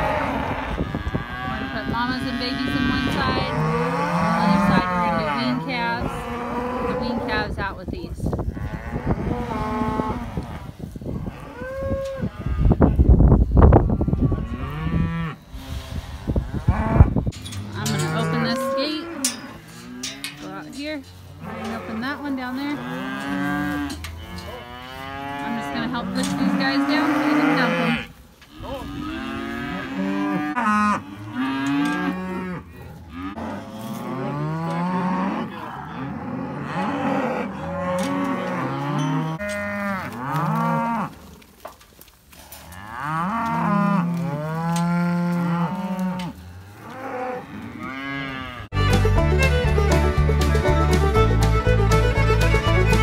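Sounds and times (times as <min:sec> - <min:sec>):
cows and calves mooing: 0:00.0 - 0:41.5, 0:42.3 - 0:48.8
music: 0:48.7 - 0:53.0.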